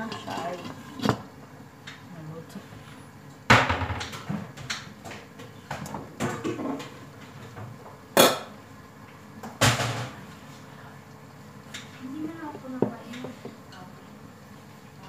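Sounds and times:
kitchen knocks and clanks: 3.5s - 8.6s, 9.4s - 10.2s.

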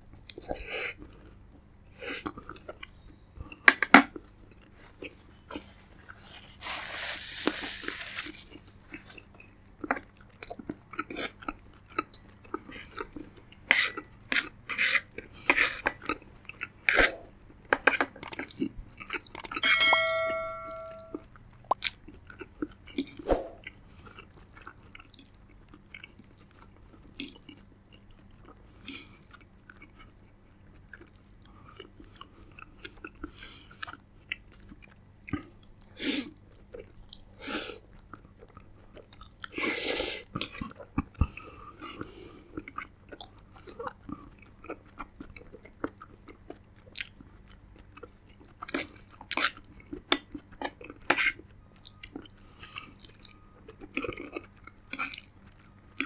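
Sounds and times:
person chewing and crunching food: 0.0s - 19.6s, 20.9s - 56.0s
ringing clink: 19.6s - 21.2s.

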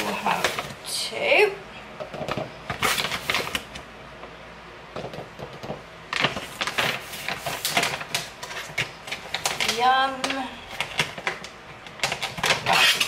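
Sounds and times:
plastic pouch crinkling: 2.8s - 3.8s, 6.2s - 9.8s.

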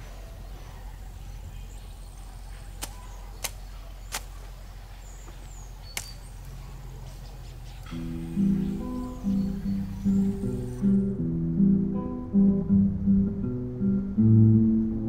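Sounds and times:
steady low hum: 0.0s - 15.0s
sharp short cracks: 2.8s - 4.5s, 5.9s - 6.5s.

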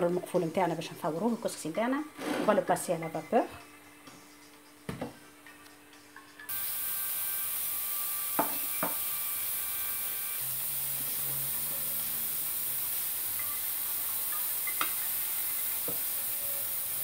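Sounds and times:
pot hissing on stove: 6.5s - 17.0s
spoon clinking on metal cookware: 14.3s - 15.7s.

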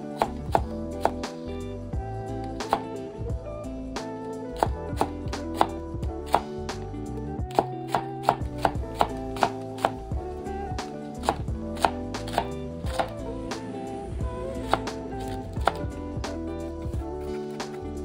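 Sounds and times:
background music: 0.0s - 18.0s
knife chopping vegetables on board: 0.1s - 1.4s, 2.6s - 2.9s, 4.6s - 6.5s, 7.5s - 10.0s, 11.2s - 13.2s, 14.7s - 15.9s.

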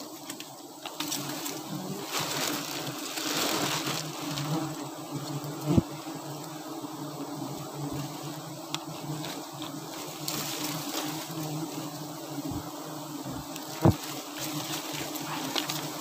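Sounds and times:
bees humming: 0.0s - 16.0s.

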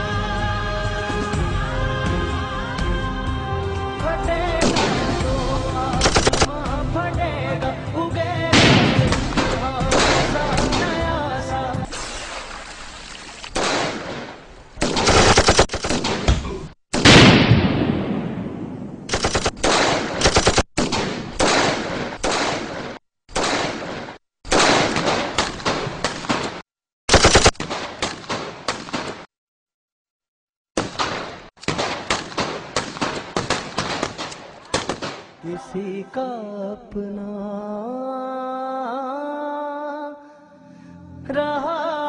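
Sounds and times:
single gunshots: 4.6s - 5.2s, 8.6s - 11.0s, 13.5s - 29.3s, 30.8s - 35.4s
automatic rifle fire: 6.0s - 6.5s, 13.6s - 16.3s, 17.0s - 18.2s, 19.1s - 29.3s, 30.8s - 35.4s.

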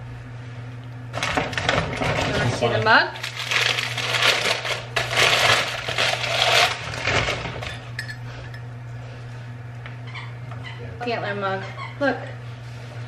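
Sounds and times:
paper wrapping crinkling: 3.2s - 7.7s.

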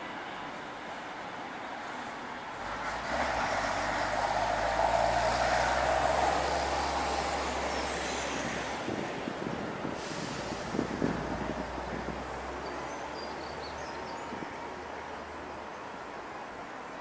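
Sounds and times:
vehicle passing by: 2.6s - 9.6s.

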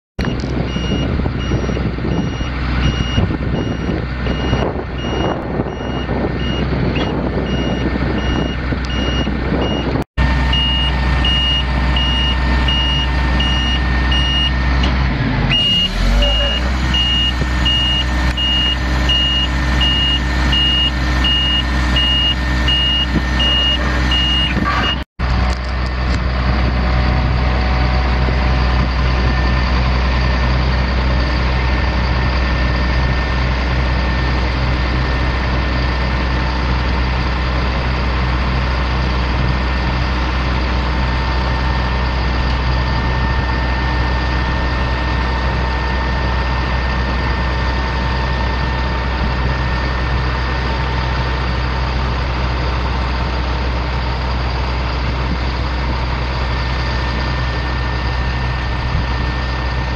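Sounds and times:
backup alarm beeping: 0.2s - 14.6s, 15.5s - 25.0s
diesel truck engine running: 0.2s - 59.9s.

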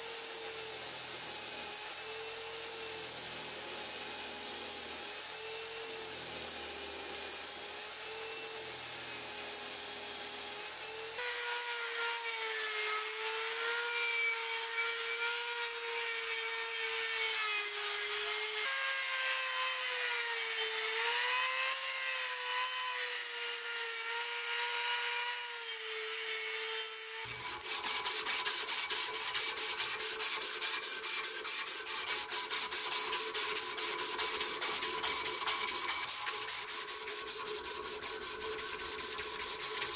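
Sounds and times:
rotary tool grinding metal: 12.8s - 39.9s
abrasive strip rasping: 27.2s - 39.9s.

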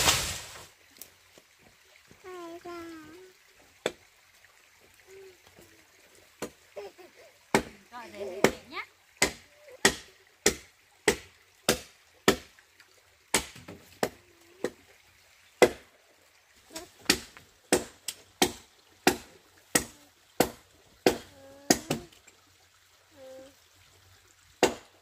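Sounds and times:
blade chopping wood: 9.2s - 12.5s, 13.3s - 14.8s, 24.6s - 24.9s.

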